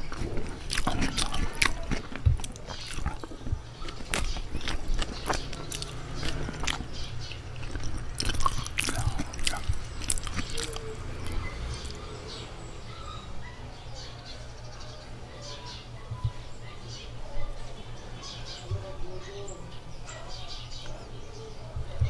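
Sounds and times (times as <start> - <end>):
person chewing food: 0.0 - 12.1
faint low hum: 0.0 - 22.0.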